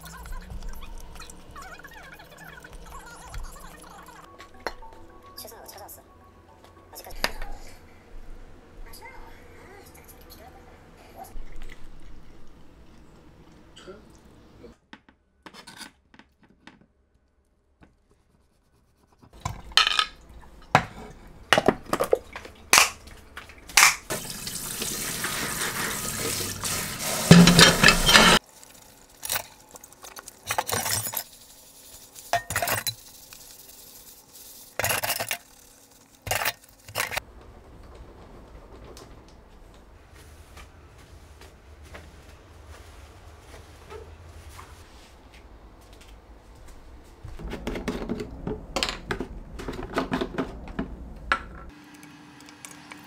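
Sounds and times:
dishes clattering: 27.3s - 28.4s, 32.3s - 33.0s.

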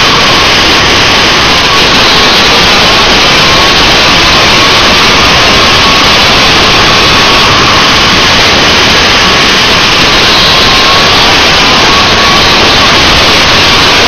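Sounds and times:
two-stroke engine whine: 0.0s - 14.0s
wind rushing over microphone: 0.0s - 14.0s.

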